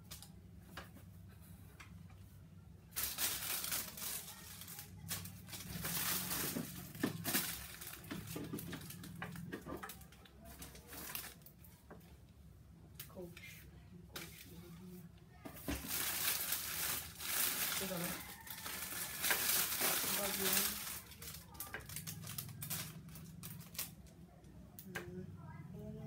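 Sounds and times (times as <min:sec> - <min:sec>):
plastic packaging crinkling: 0:02.9 - 0:11.5, 0:15.6 - 0:24.1.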